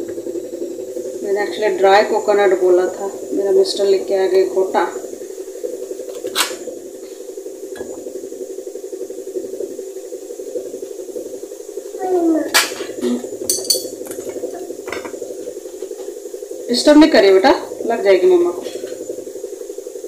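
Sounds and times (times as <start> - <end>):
steady hum: 0.0 - 20.0
child's voice: 12.0 - 13.2.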